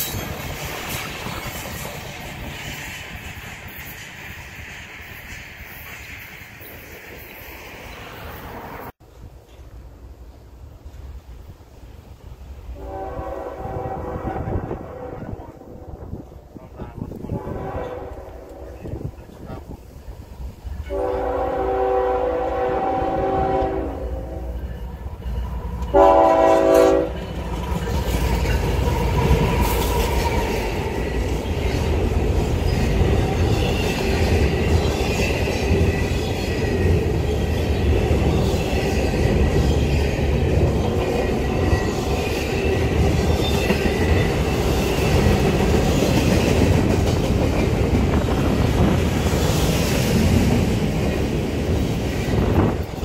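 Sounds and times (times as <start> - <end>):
train rolling past: 0.0 - 53.0
locomotive air horn: 12.8 - 16.0, 17.3 - 19.0, 20.8 - 24.7, 25.9 - 27.2.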